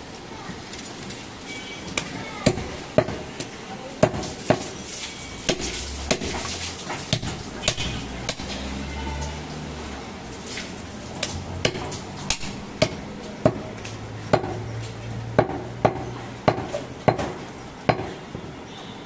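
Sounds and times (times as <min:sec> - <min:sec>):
cleaver chopping on wooden block: 0:07.1 - 0:08.5, 0:11.2 - 0:13.6, 0:14.3 - 0:14.6, 0:15.4 - 0:18.2.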